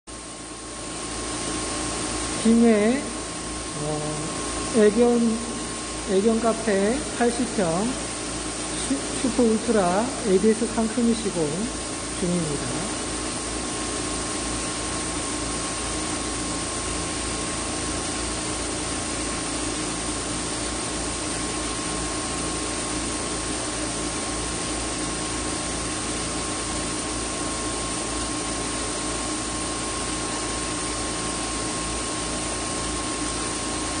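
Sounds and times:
blower machine rushing air: 0.1s - 34.0s.

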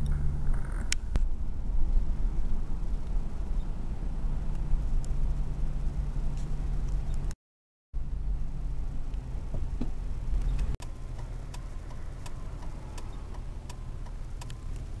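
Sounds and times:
car engine and road noise: 0.0s - 7.4s, 8.0s - 15.0s
faint regular ticking: 10.4s - 15.0s.

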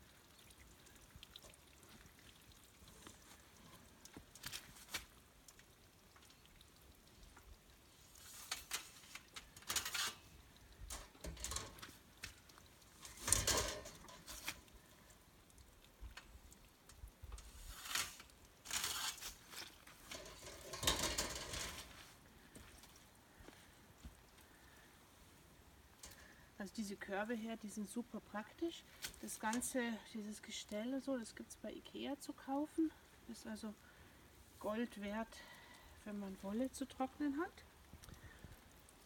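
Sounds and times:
plastic baskets scraping and rattling: 13.1s - 14.6s, 17.6s - 21.9s.

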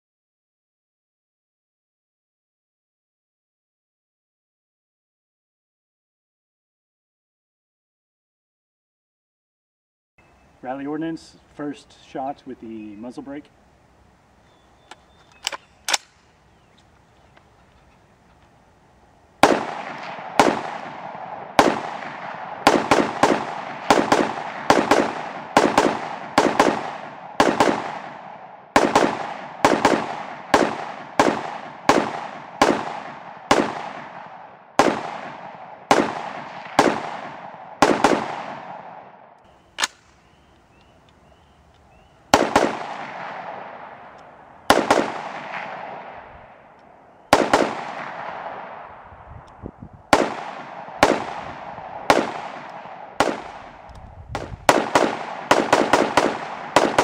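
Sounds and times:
rifle shots with echo: 19.4s - 40.4s, 42.3s - 49.2s, 50.1s - 57.0s.

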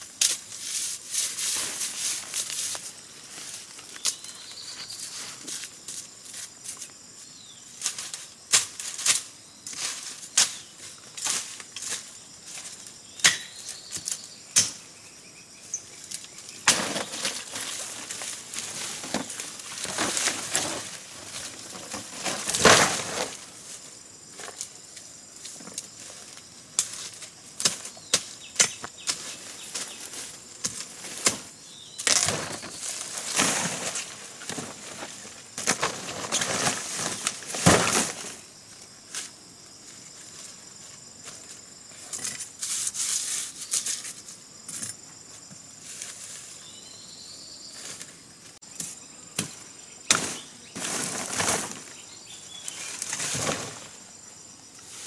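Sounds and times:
stems rustling on dry leaves: 0.2s - 7.1s, 16.0s - 41.5s, 50.1s - 54.2s.

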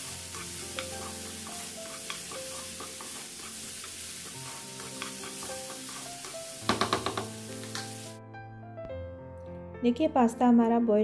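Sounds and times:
spatula tapping pan: 0.0s - 8.1s
vegetables sizzling in frying pan: 0.0s - 8.2s
soft background music: 0.0s - 11.0s.

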